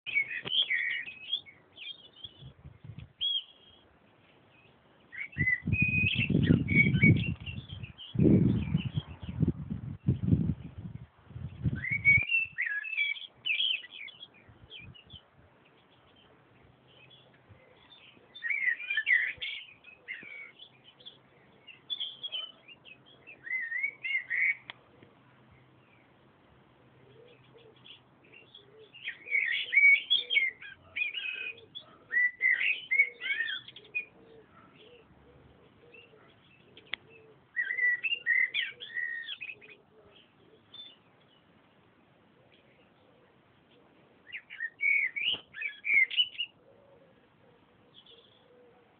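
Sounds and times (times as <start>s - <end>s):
songbirds singing: 0.0s - 48.9s.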